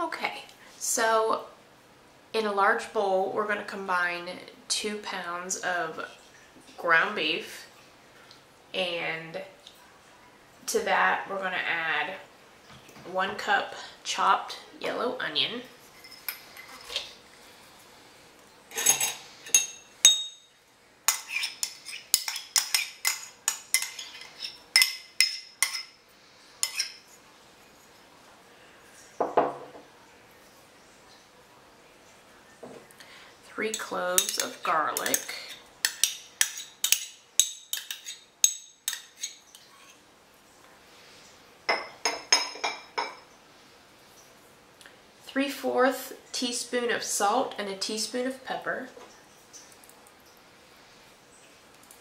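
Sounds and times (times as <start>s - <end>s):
metal spoon clinking on ceramic dish: 18.7s - 20.5s, 33.7s - 39.4s
spoon clinking on ceramic cup: 18.7s - 20.5s.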